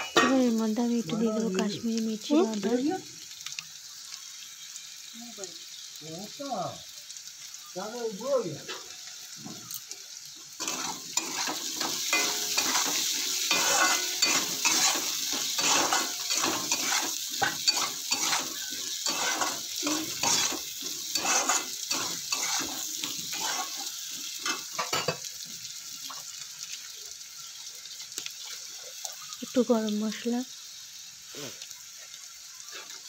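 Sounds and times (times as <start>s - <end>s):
frying sizzle: 0.0s - 33.0s
metal spatula scraping pan: 10.6s - 25.2s.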